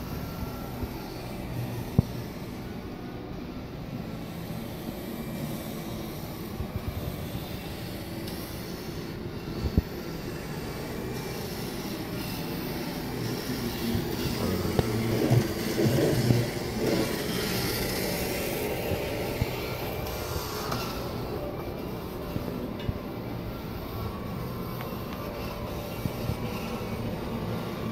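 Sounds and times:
indoor hall rumble and hiss: 0.0 - 27.9.

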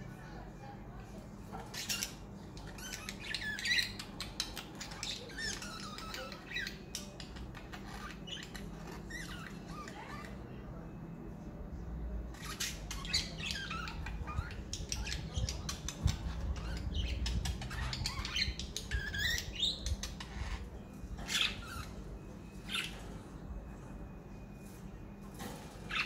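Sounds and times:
budgerigars chirping: 1.7 - 10.4, 12.4 - 22.0, 22.6 - 23.2.

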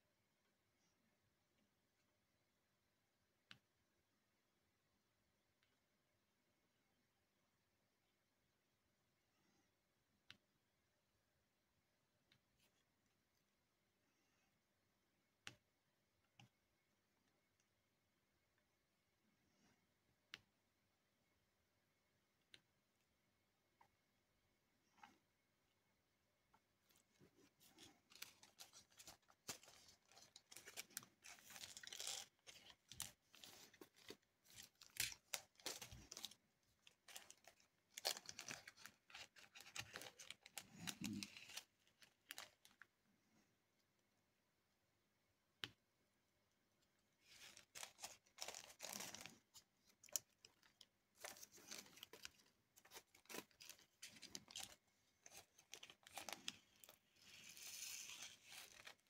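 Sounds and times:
plastic bag crinkling: 26.9 - 42.8, 47.2 - 59.0.

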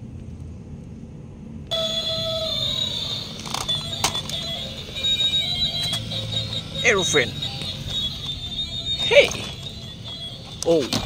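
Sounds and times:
toy speaker shrill electronic tune: 1.7 - 11.0
sharp clicks: 3.4 - 6.8.

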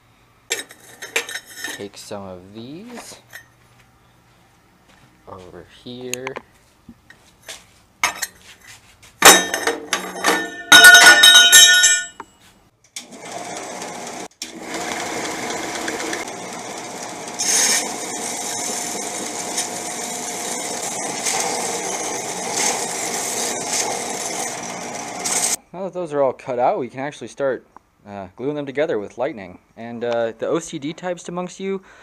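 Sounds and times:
steel tubing clattering: 9.2 - 12.2
belt sander grinding metal: 13.0 - 25.6.

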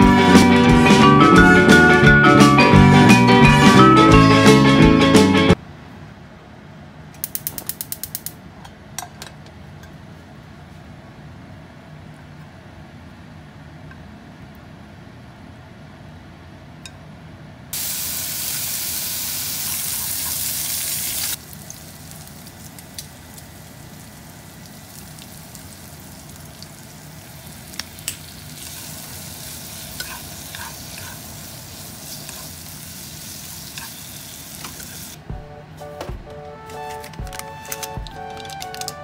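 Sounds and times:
chopsticks clicking against a pan: 7.2 - 8.4
meat and onion sizzling in a pan: 17.8 - 35.2.

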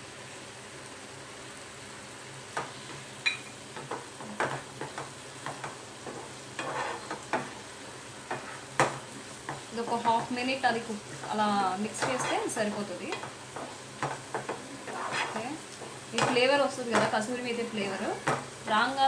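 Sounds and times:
masala sizzling in oil: 0.0 - 19.0
wooden spatula scraping a pan: 3.8 - 7.6, 8.3 - 18.5.

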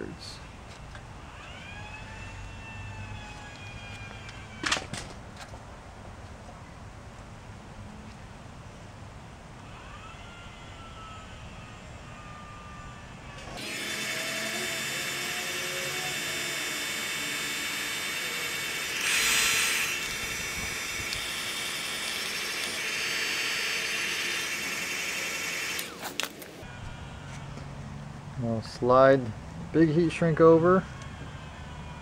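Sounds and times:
heat gun blowing: 13.6 - 26.3.

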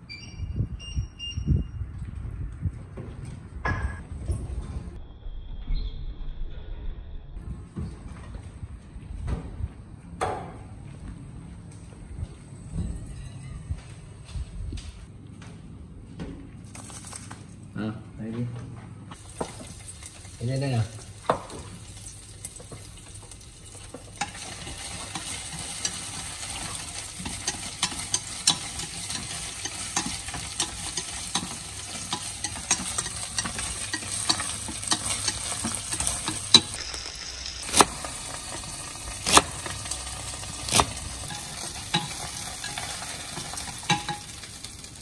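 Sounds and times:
crabs sizzling in hot oil: 19.2 - 45.0
chopsticks clicking on pan: 27.2 - 36.8, 40.7 - 44.4.

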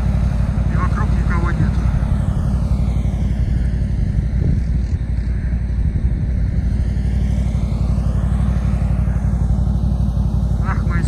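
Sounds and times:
low engine rumble: 0.0 - 11.0.

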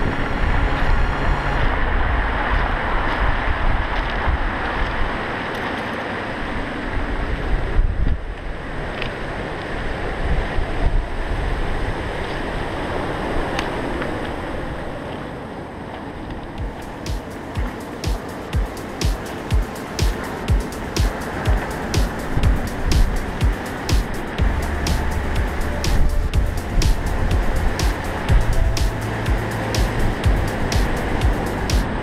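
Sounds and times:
wind buffeting microphone: 0.0 - 32.0
surf breaking on shingle beach: 16.6 - 32.0.

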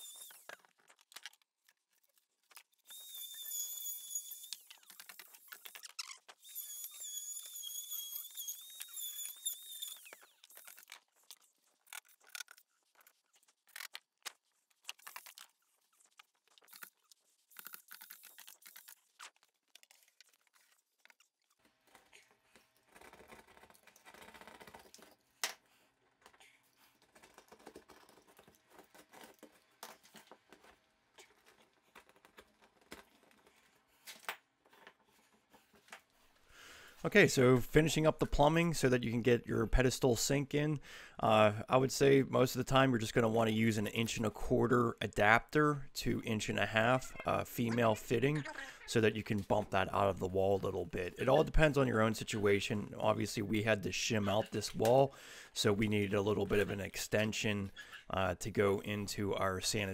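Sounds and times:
small power tool whining: 0.0 - 0.5, 2.8 - 10.9.

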